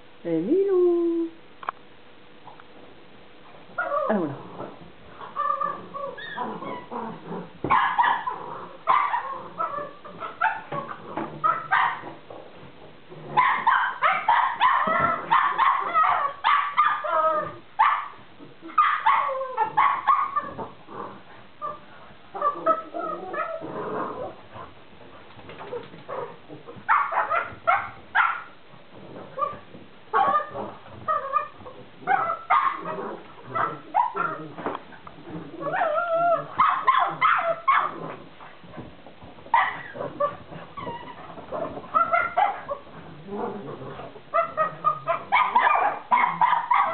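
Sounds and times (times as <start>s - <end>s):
small dogs barking and yipping: 5.2s - 7.0s, 7.6s - 12.3s, 13.3s - 20.8s, 25.5s - 28.6s, 29.3s - 34.7s, 35.6s - 43.1s, 43.9s - 46.9s.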